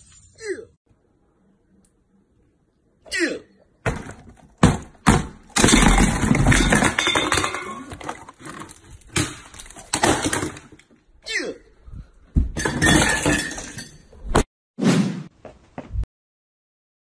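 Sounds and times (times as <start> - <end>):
sharp knocks and thuds: 3.8 - 6.9.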